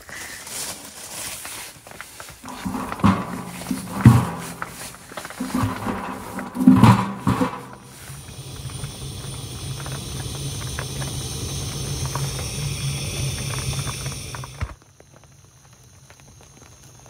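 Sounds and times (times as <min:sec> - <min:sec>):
blowtorch hissing: 0:02.5 - 0:14.8.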